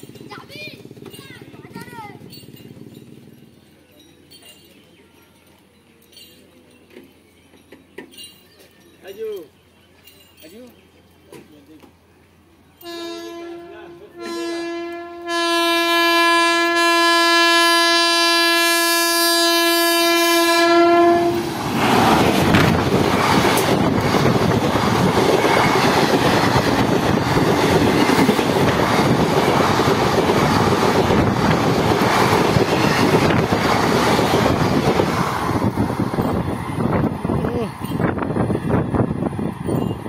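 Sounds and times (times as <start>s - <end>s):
train horn long blast: 12.8s - 21.6s
train wheels clattering over rails: 21.3s - 40.0s.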